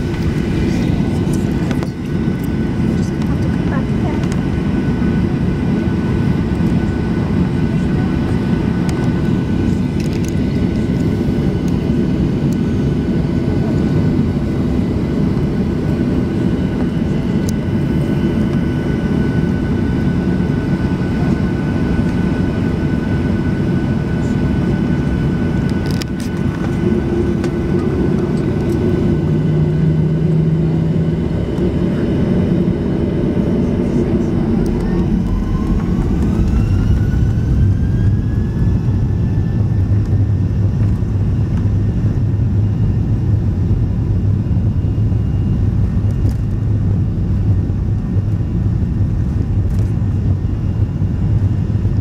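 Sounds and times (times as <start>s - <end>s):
airliner engine rumble: 0.0s - 52.0s
deeper engine tone: 0.0s - 52.0s
thin steady whine: 15.0s - 52.0s.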